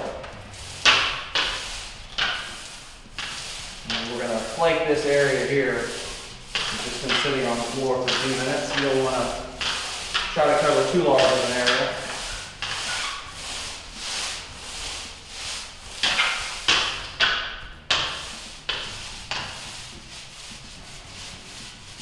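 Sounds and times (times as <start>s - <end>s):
roller swishing through wet coating: 0.0s - 22.0s.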